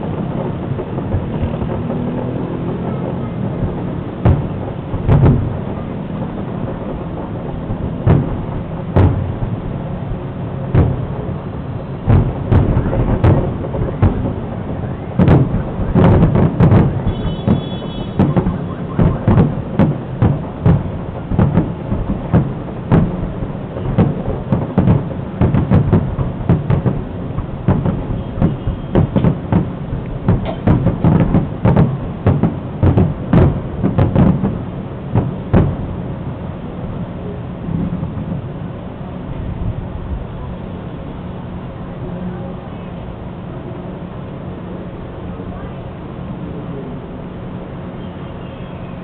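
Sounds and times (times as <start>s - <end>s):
fireworks shells bursting: 15.2s - 35.9s.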